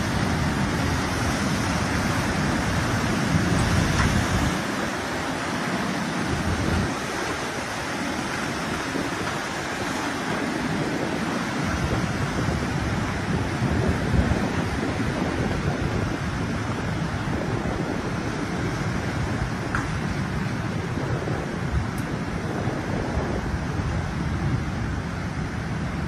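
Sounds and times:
turbulent water rushing: 0.0 - 26.0
wind buffeting microphone: 0.0 - 26.0.

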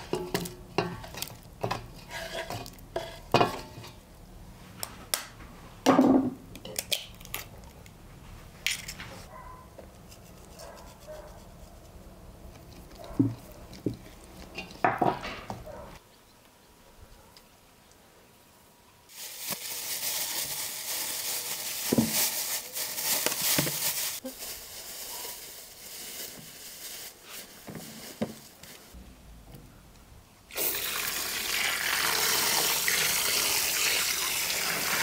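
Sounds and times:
water running from a tap: 30.5 - 35.0.

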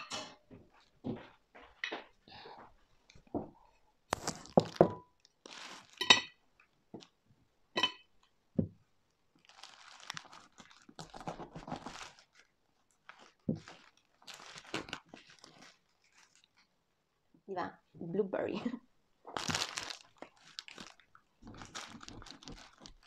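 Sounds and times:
knife clinking on ceramic plate: 7.8 - 8.1.

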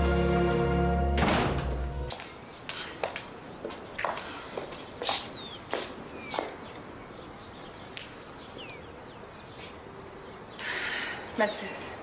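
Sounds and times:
outdoor background noise: 0.0 - 12.0
birds chirping: 2.7 - 12.0.

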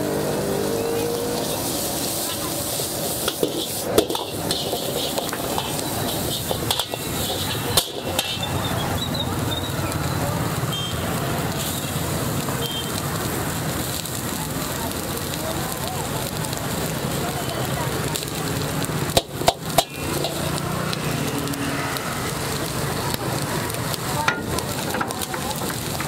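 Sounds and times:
gas burner roaring: 0.0 - 26.0
vegetables sizzling: 0.0 - 26.0
metal ladle scraping wok: 1.4 - 9.1, 19.6 - 21.3.

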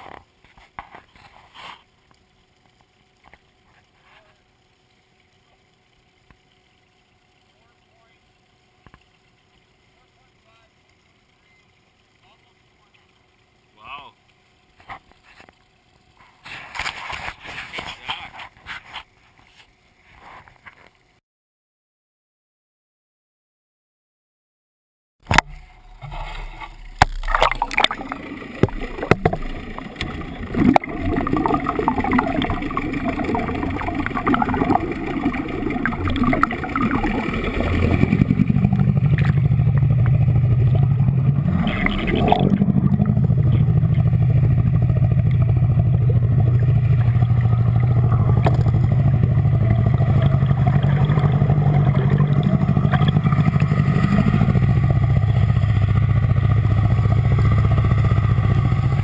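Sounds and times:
outboard motor underwater drone: 0.0 - 21.2, 25.2 - 59.0
splashes and knocks: 25.2 - 54.7
propeller wash: 25.4 - 59.0.

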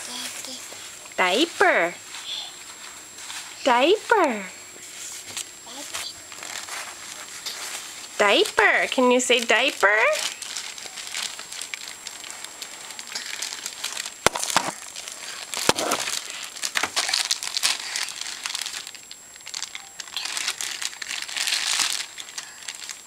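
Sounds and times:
plastic packaging crinkling: 6.2 - 8.6, 9.3 - 23.0.

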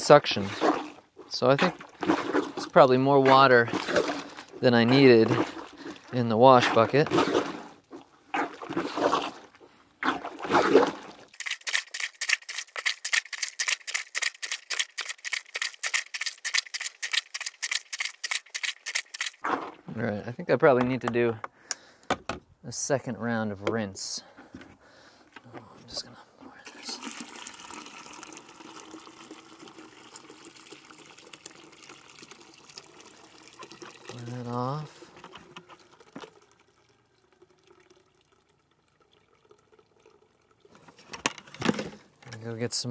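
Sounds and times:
water sloshing and sucking: 0.0 - 20.1, 25.0 - 41.2
splashy plunger clicks: 10.1 - 19.4.

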